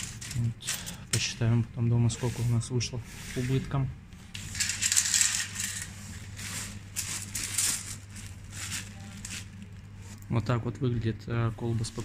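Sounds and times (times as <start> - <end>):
coins clinking: 0.0 - 1.2, 4.4 - 9.6
steady low hum: 0.0 - 12.0
paper and plastic rustling: 2.0 - 10.3, 11.6 - 12.0.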